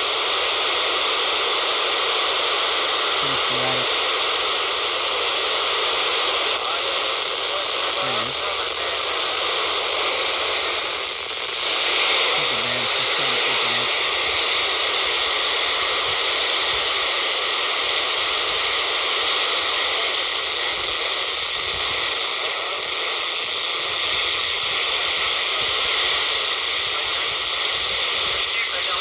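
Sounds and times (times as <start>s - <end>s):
radio static hiss: 0.0s - 29.0s.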